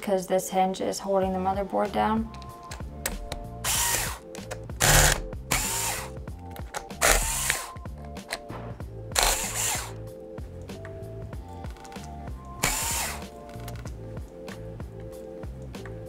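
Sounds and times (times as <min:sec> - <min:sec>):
cordless screwdriver whirring: 0:02.7 - 0:08.4, 0:09.2 - 0:10.0, 0:12.6 - 0:13.8.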